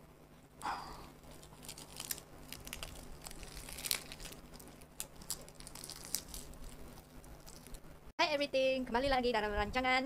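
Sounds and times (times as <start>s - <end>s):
seaweed crackling while chewed: 1.1s - 7.9s.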